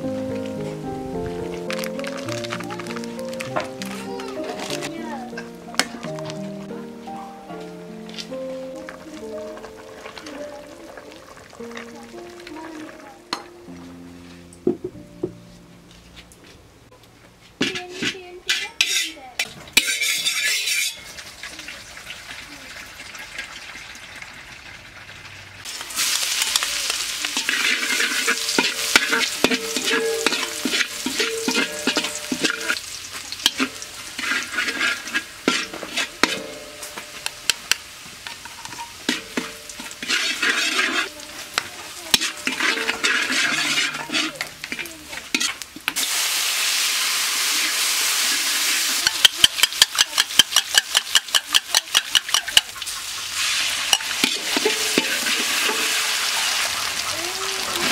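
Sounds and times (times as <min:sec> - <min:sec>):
garlic sizzling in oil: 0:00.0 - 0:14.0, 0:17.7 - 0:57.9
metal ladle scraping wok: 0:07.6 - 0:12.5, 0:17.6 - 0:21.3, 0:25.6 - 0:46.3, 0:47.4 - 0:57.9.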